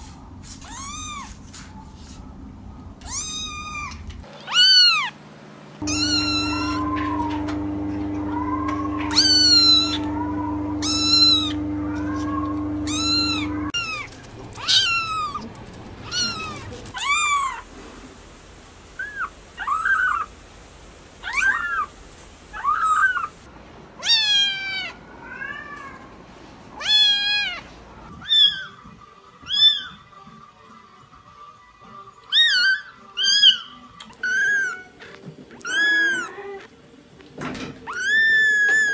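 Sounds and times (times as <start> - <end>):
kittens meowing: 3.0 - 5.1, 5.9 - 7.4, 8.1 - 17.6, 32.3 - 34.9, 35.6 - 36.7, 37.9 - 38.9.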